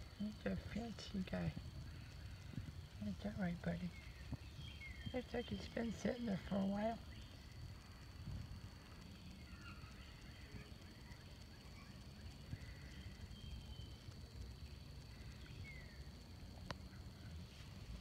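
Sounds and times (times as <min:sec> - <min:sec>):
low rumble: 0:00.0 - 0:10.3
distant bird chirps: 0:00.0 - 0:18.0.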